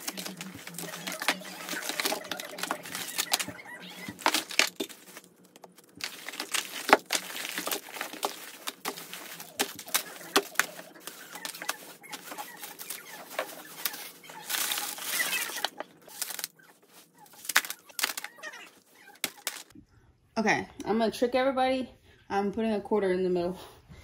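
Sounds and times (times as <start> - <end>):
candies dropping on wooden floor: 0.0 - 18.6, 19.2 - 19.7
plastic wrappers crinkling: 0.0 - 19.7.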